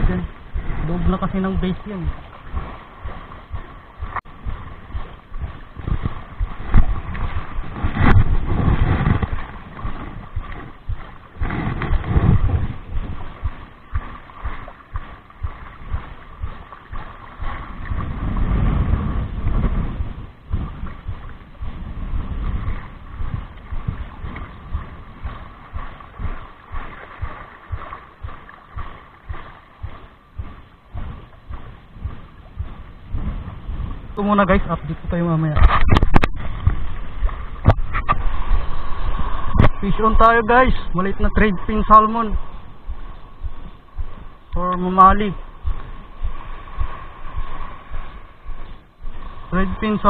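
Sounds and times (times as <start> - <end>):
water lapping against rocks: 0.0 - 50.0
wind on microphone: 0.0 - 50.0.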